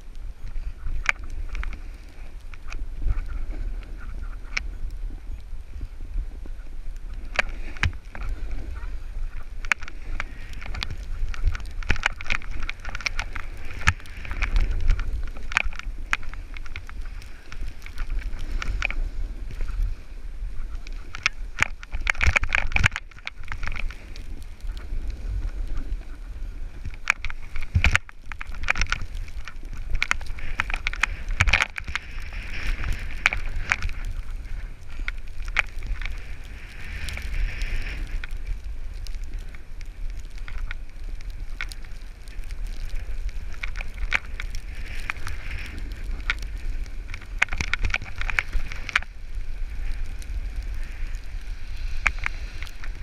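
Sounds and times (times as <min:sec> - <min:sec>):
snowboard scraping through snow: 0:00.0 - 0:22.0, 0:23.5 - 0:27.9, 0:28.5 - 0:53.0
wind rumble on microphone: 0:00.0 - 0:53.0.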